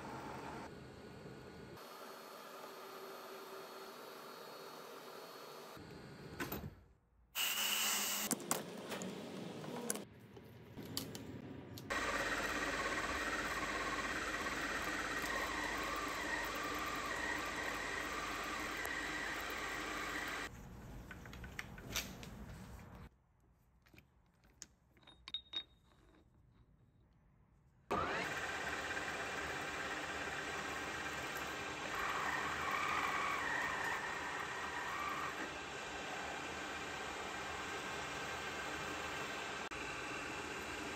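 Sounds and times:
metal lathe cutting: 11.9 - 20.5.

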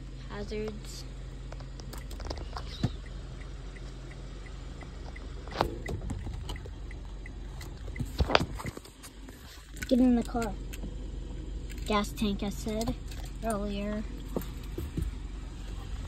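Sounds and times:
car engine idling: 0.0 - 16.0
hazard-light flasher ticking: 1.8 - 9.1.

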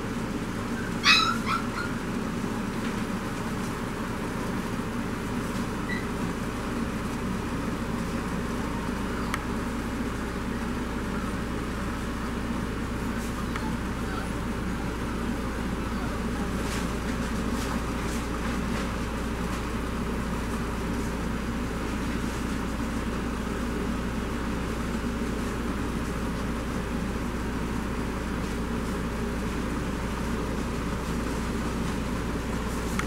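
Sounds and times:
background rumble and hiss: 0.0 - 33.0.

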